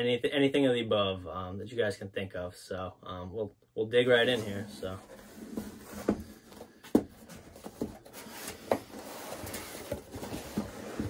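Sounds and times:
cardboard scraping: 4.2 - 11.0.

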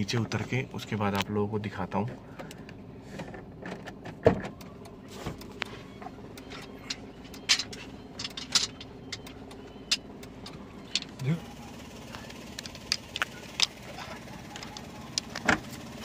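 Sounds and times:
car engine idling: 0.0 - 16.0
clicks and knocks inside car: 2.0 - 11.2.

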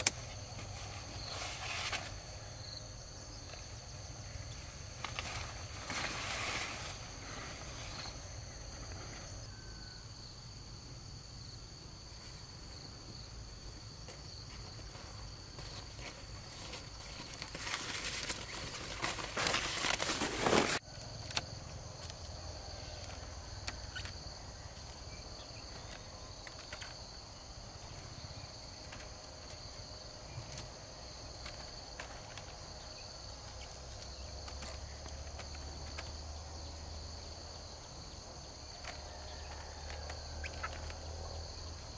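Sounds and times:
insects trilling: 0.0 - 41.9
loud rustling: 16.0 - 20.8.

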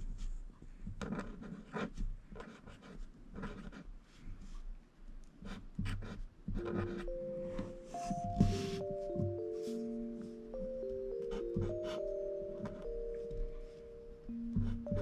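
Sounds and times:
marker writing on paper: 1.0 - 4.6, 5.4 - 10.0, 11.2 - 12.8, 14.6 - 15.0.

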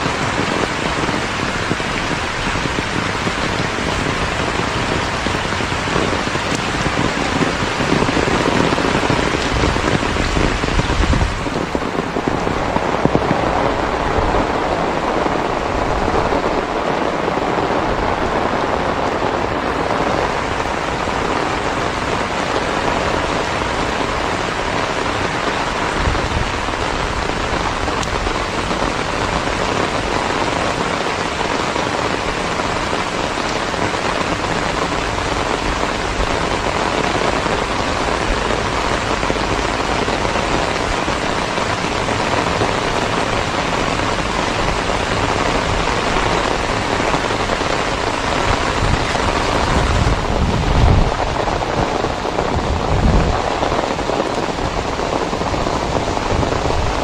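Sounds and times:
heavy rain on a muddy road: 0.0 - 57.0
wind gusts on microphone: 0.0 - 57.0.

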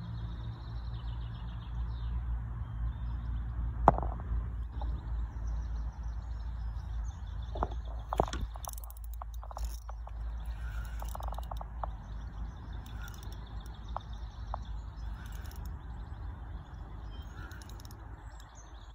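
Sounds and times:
wind rumbling on microphone: 3.9 - 18.9
small birds chirping: 4.6 - 18.9.

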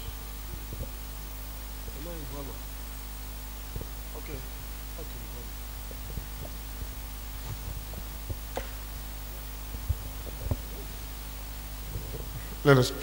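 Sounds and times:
electrical hum: 0.0 - 13.0
low thumps: 5.4 - 12.5.

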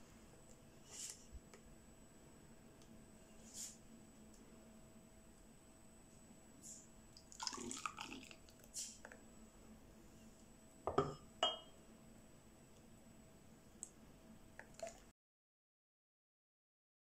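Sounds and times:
soup pouring into bowl: 7.2 - 8.8, 14.6 - 15.1.

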